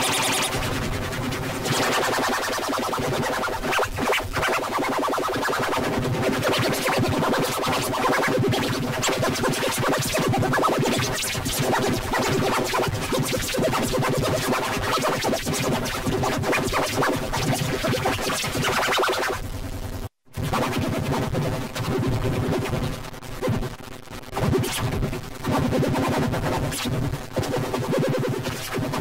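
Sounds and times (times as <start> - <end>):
stuttering electronic music: 0.0 - 19.4.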